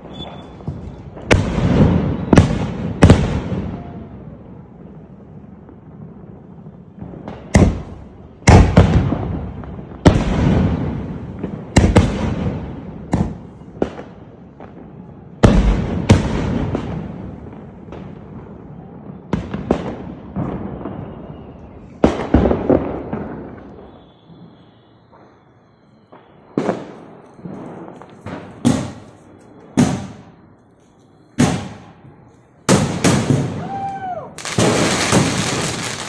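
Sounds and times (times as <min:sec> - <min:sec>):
firework shells bursting: 0:34.4 - 0:36.0.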